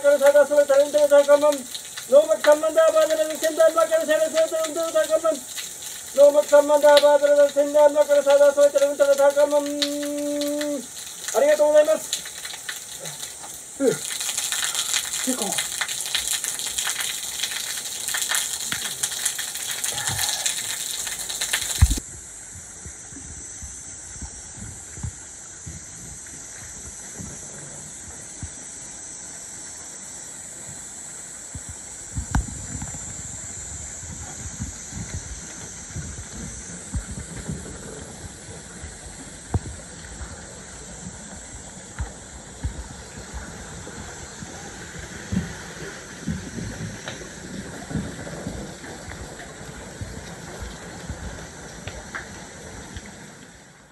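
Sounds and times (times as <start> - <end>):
water stream falling on rock: 0.0 - 22.0
water wheel splashing: 0.0 - 22.0.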